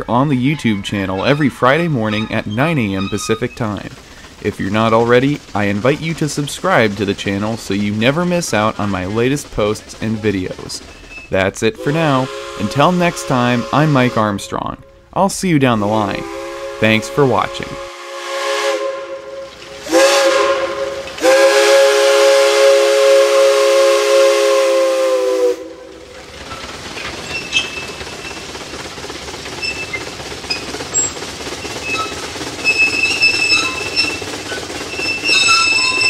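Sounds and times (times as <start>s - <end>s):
high wheel squeals: 0.5s - 3.9s, 27.1s - 28.4s, 29.6s - 36.0s
steam whistle blasts: 11.8s - 14.2s, 16.2s - 25.9s.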